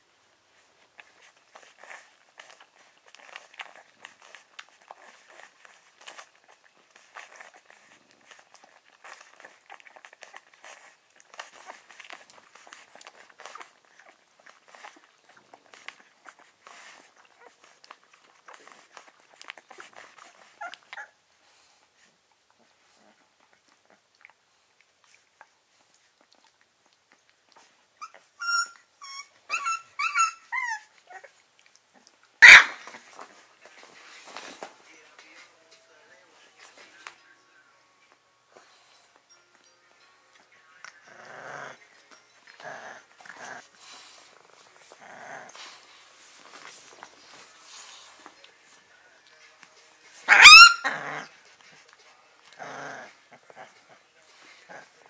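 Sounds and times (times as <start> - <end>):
puppies squeaking and grunting: 0.6 - 21.2, 22.0 - 35.5, 40.8 - 48.8, 49.6 - 55.0
puppy yips: 28.0 - 31.3, 32.4 - 33.0, 50.3 - 51.0.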